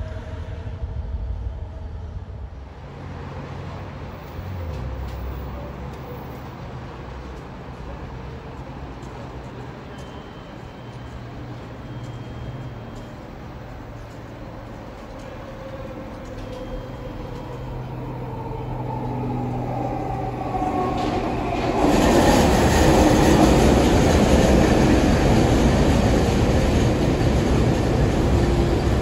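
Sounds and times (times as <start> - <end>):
metro train rolling past: 0.0 - 29.0.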